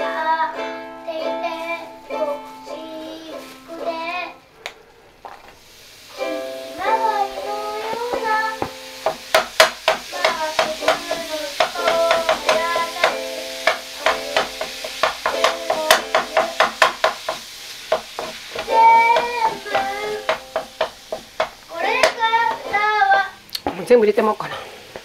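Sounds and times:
person singing: 0.0s - 4.4s, 6.2s - 8.8s, 9.9s - 16.8s, 18.6s - 20.6s, 21.7s - 23.4s.

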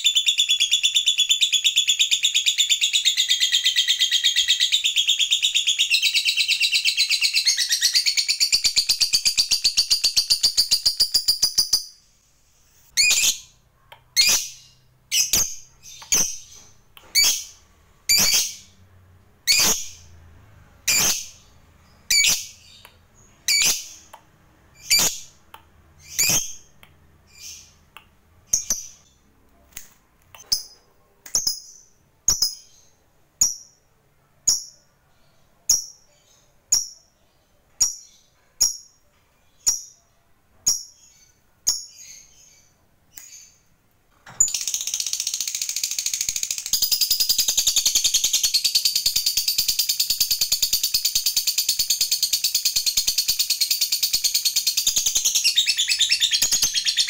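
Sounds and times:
lovebird chirping and trilling: 0.0s - 12.0s, 12.8s - 18.8s, 19.4s - 20.2s, 20.8s - 29.2s, 44.4s - 57.0s.

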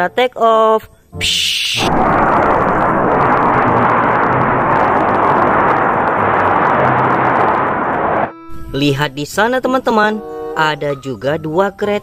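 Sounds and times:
jet fighters flying past: 1.8s - 8.3s.

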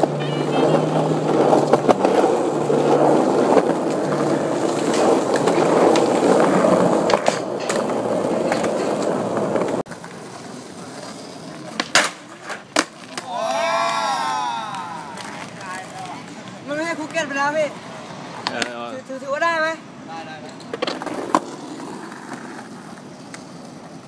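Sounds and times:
skateboard clacking on ground: 0.0s - 14.1s, 14.7s - 17.4s, 18.3s - 19.0s, 20.3s - 24.0s
skateboard wheels rolling on concrete: 0.0s - 24.0s.

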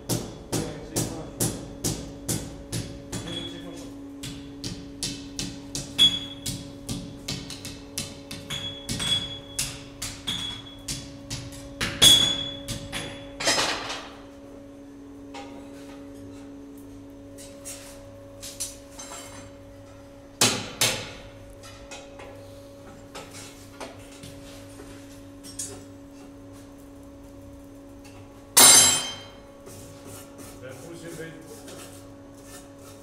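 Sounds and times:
steady hum: 0.0s - 33.0s
hammer striking metal on anvil: 7.6s - 13.6s, 28.6s - 29.4s.

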